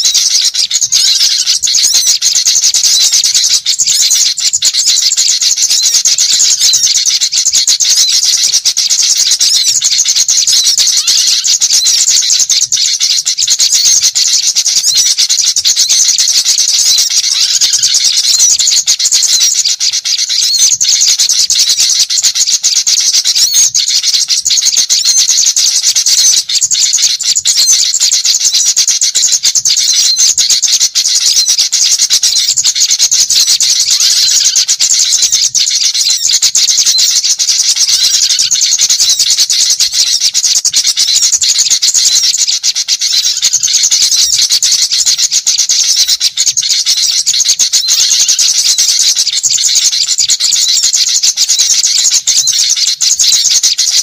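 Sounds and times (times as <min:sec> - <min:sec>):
small birds chirping and twittering: 0:00.0 - 0:54.0.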